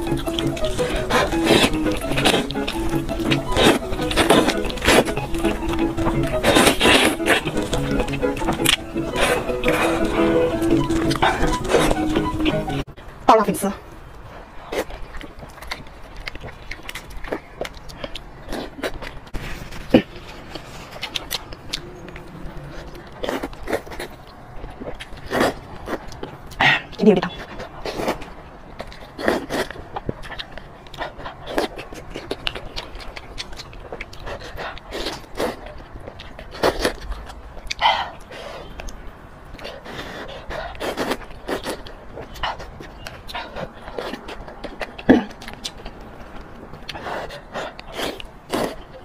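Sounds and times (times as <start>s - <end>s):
mouth sound: 0.0s - 12.8s.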